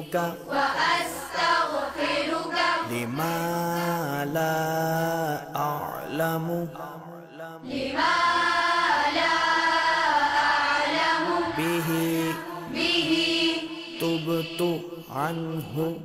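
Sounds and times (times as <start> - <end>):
children chanting in unison: 0.1 - 4.4, 7.6 - 14.8.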